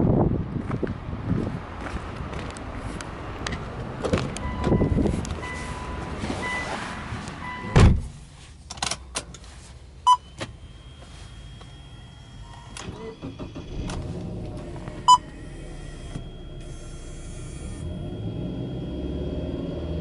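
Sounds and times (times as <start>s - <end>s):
car warning chime beeping: 4.4s - 6.7s, 7.4s - 7.8s, 10.0s - 13.6s, 15.0s - 19.7s
car door shutting: 7.6s - 8.1s
single beep: 10.1s - 12.8s
faint high whine: 10.2s - 13.6s.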